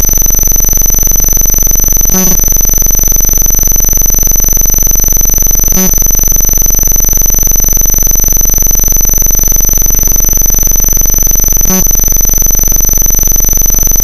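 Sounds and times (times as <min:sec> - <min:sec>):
high whine: 0:00.0 - 0:14.0
distorted electronic noise: 0:02.1 - 0:02.5.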